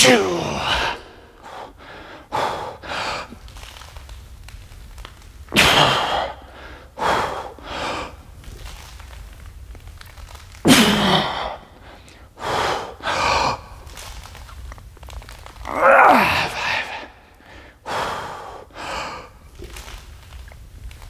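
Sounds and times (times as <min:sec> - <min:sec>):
person breathing hard: 0:00.6 - 0:03.7, 0:05.8 - 0:08.3, 0:11.1 - 0:14.1, 0:16.4 - 0:19.9.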